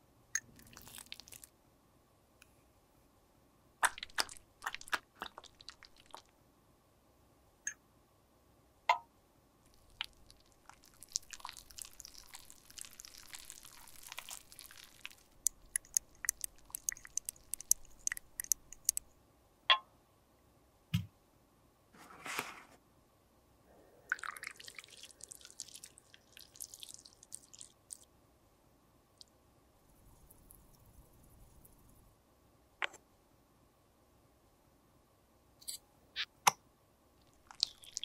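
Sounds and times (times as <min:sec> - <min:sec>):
sharp clicks and taps: 0:15.4 - 0:19.0.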